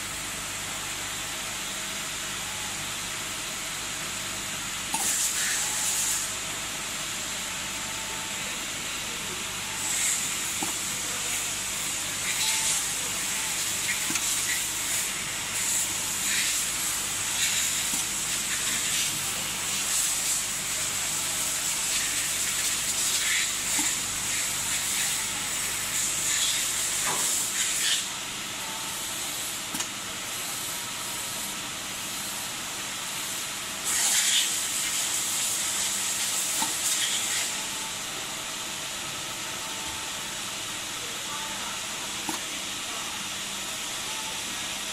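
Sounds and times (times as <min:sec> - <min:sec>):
steady machine hiss: 0:03.5 - 0:39.4.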